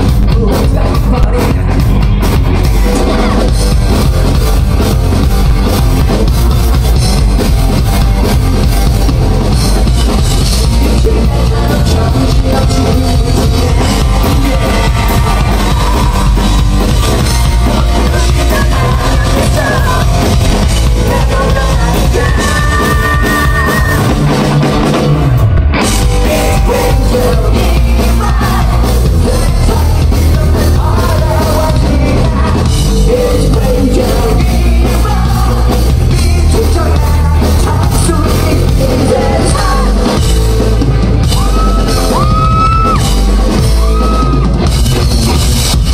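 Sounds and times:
person singing: 0.0 - 2.0, 10.5 - 24.1, 26.0 - 40.4
heavy rock band playing: 0.0 - 45.9.

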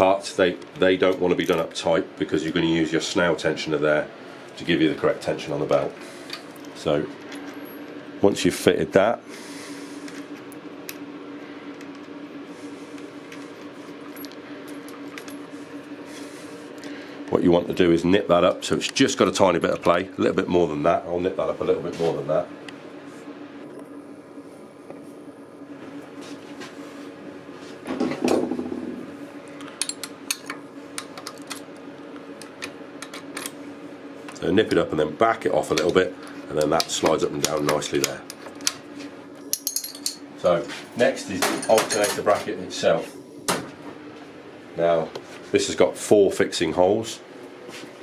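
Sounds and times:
steady low hum: 0.0 - 48.0
spanner clinking on metal: 29.7 - 31.6, 39.4 - 40.2.

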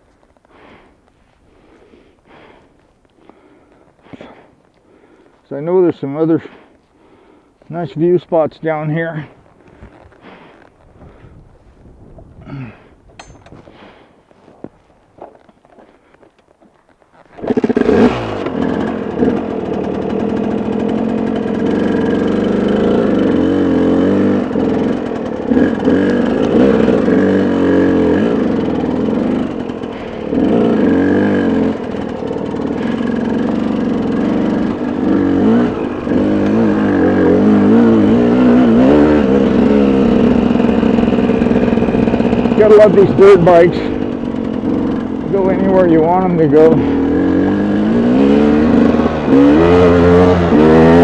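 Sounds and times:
dirt bike engine revving: 17.2 - 51.0.

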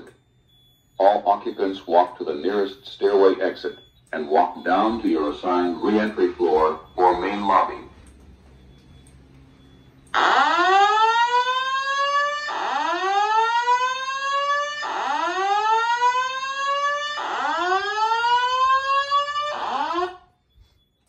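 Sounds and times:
spoken evacuation message: 1.0 - 8.1
rising whoop alarm tone: 10.2 - 20.2.

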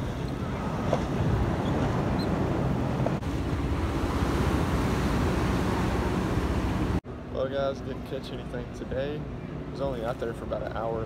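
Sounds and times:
wind buffeting microphone: 0.0 - 7.0
ocean surf: 0.0 - 11.0.

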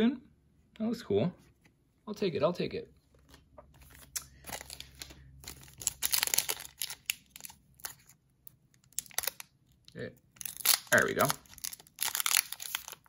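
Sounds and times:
foil wrapper crinkling and tearing: 3.8 - 13.0.

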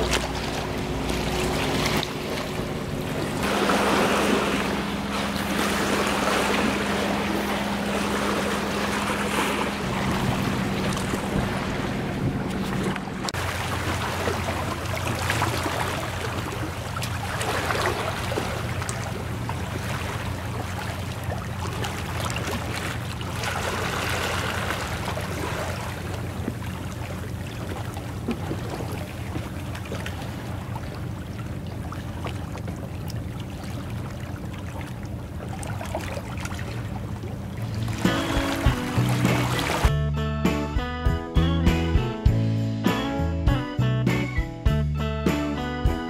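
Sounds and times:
sea water washing over concrete: 0.0 - 39.9
wind rumbling on microphone: 4.8 - 17.3.

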